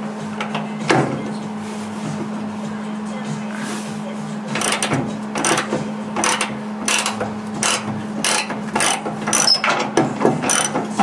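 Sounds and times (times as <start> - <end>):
steady low hum: 0.0 - 11.0
ratchet wrench clicking: 4.5 - 11.0.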